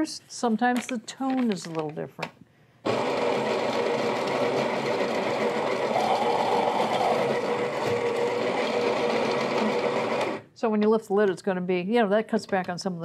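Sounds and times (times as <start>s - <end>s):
coffee beans grinding: 2.9s - 10.4s
coffee grinder motor whir: 2.9s - 10.5s.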